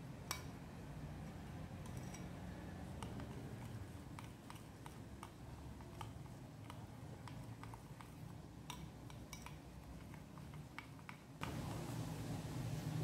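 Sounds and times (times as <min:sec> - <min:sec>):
spoon scraping a glass bowl: 0:01.3 - 0:06.4.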